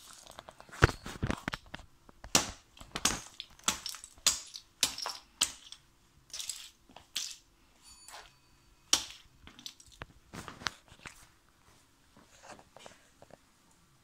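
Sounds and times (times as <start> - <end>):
figurines crunching underfoot: 0.0 - 7.5.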